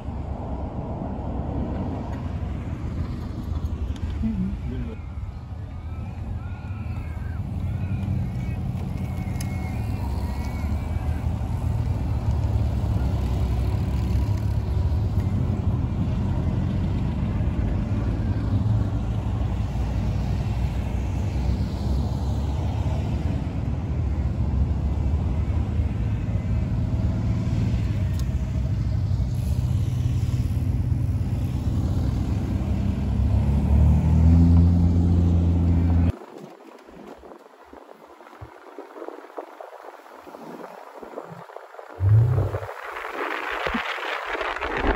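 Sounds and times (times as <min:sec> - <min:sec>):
cars driving past: 0:00.0 - 0:36.2, 0:41.5 - 0:44.9
car engine accelerating: 0:42.0 - 0:43.8.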